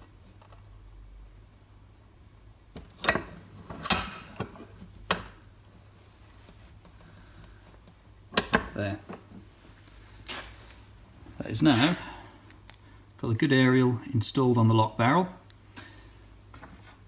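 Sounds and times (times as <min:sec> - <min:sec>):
bench vise metal clanks: 0:03.0 - 0:05.4, 0:08.3 - 0:08.8.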